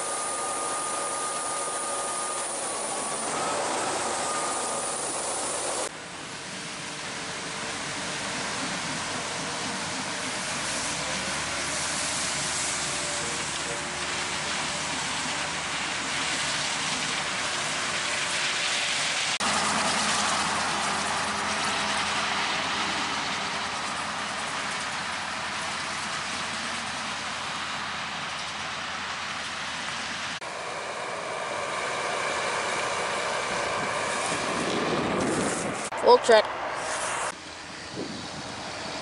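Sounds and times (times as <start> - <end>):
combine harvester drone: 0.0 - 39.0
tractor engine drone: 0.0 - 39.0.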